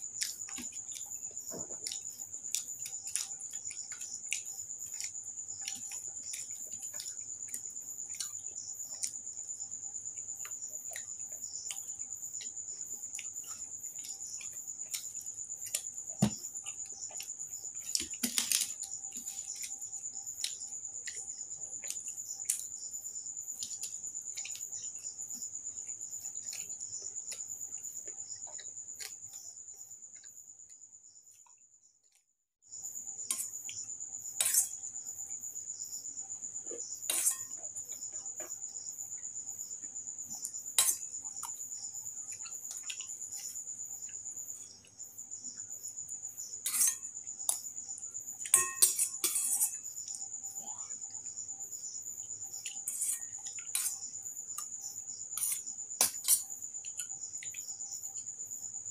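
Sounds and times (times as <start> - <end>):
crickets trilling: 0.0 - 32.0, 32.6 - 58.9
steel spoon clinking on bowl: 48.5 - 49.7.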